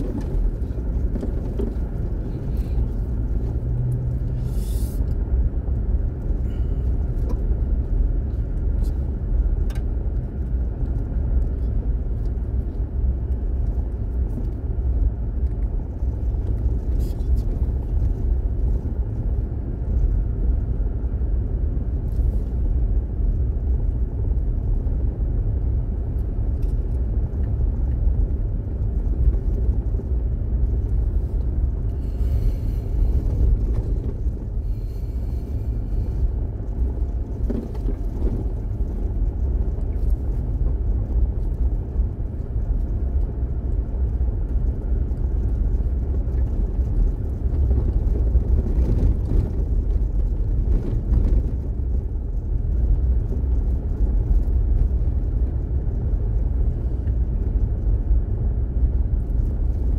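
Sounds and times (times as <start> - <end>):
car rolling on gravel: 0.0 - 4.8, 21.8 - 59.9.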